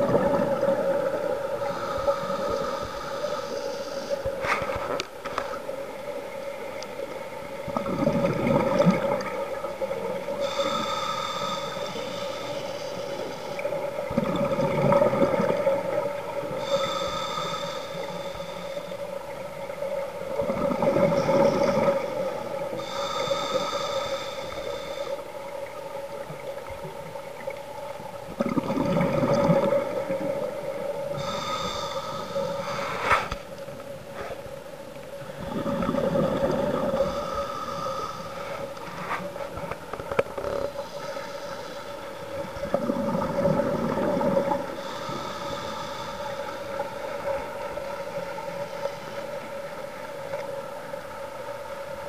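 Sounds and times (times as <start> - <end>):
exhaled bubbles rumbling: 0.0 - 2.2, 7.6 - 9.6, 14.0 - 16.4, 20.3 - 22.0, 28.2 - 30.8, 35.2 - 37.2, 42.4 - 44.8
steady hum: 0.0 - 52.0
regulator hissing inhale: 1.4 - 5.7, 9.2 - 14.1, 15.4 - 20.2, 21.0 - 25.6, 29.7 - 33.4, 36.4 - 39.6, 40.5 - 42.8, 43.4 - 50.8.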